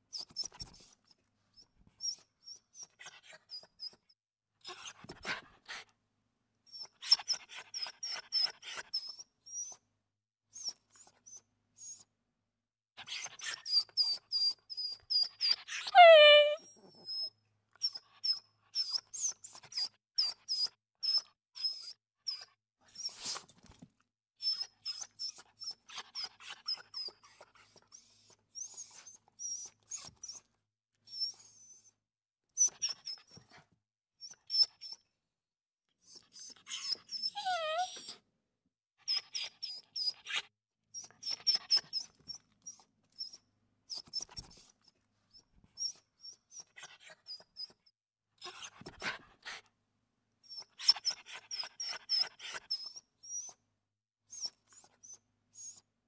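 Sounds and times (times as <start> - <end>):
puppy whining: 0.1 - 5.4, 6.7 - 9.8, 13.0 - 23.4, 24.4 - 32.0, 36.0 - 38.2, 39.1 - 44.7, 45.3 - 49.6, 50.4 - 53.6, 54.3 - 55.9
puppies squeaking and whimpering: 15.1 - 17.3, 36.4 - 38.2
small clicks and scuffles: 23.2 - 24.1.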